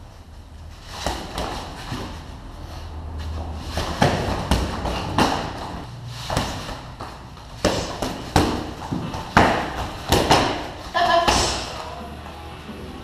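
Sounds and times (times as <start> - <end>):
feet stamping on foam mat: 3.7 - 11.6
gloved punches and kicks landing: 3.8 - 11.7.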